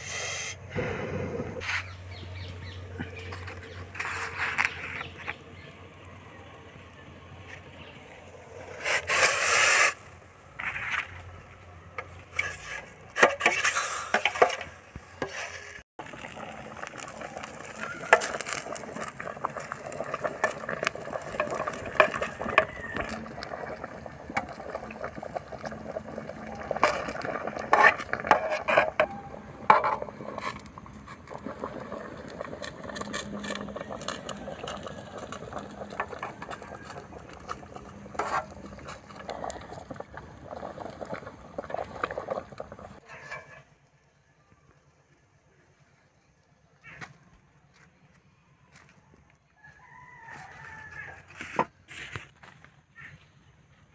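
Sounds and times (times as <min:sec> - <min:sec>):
machete scraping a steel pot: 0:03.3 - 0:05.1, 0:08.7 - 0:11.1, 0:12.2 - 0:15.8, 0:26.4 - 0:31.2, 0:36.0 - 0:39.0, 0:43.0 - 0:43.7.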